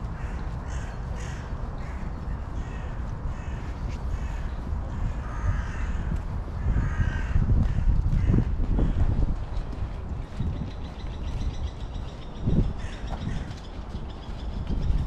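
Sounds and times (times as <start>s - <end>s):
crows cawing: 0.0s - 9.0s, 12.8s - 13.6s
wind rumble on microphone: 0.0s - 15.0s.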